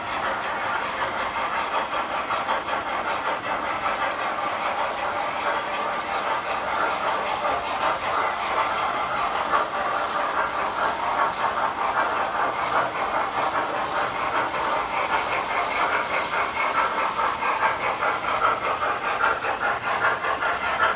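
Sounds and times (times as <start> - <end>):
model train wheels clattering: 0.0 - 20.9.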